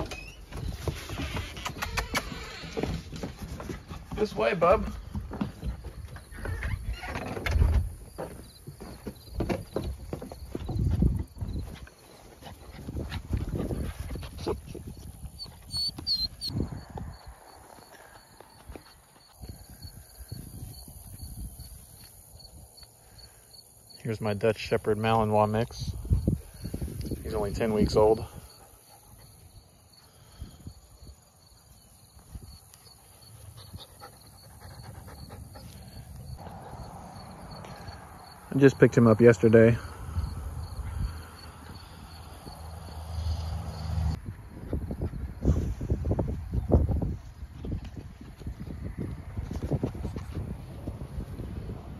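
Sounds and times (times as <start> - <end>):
crickets chirping: 3.8 - 51.8
puppy panting: 11.7 - 16.6, 32.8 - 36.8
short high squeaks: 15.4 - 16.6.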